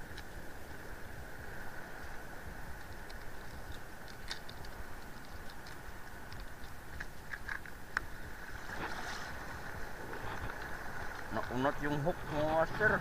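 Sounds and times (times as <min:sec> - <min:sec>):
light clicks and ticks: 0:00.0 - 0:00.8, 0:02.0 - 0:08.1
water around a boat: 0:00.0 - 0:13.0
wind: 0:00.0 - 0:13.0.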